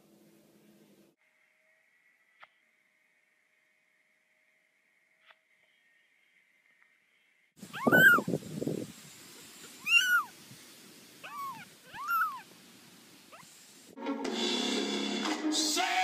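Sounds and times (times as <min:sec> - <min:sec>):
kitten mewing: 0:07.6 - 0:08.4, 0:09.7 - 0:10.3, 0:11.2 - 0:12.5.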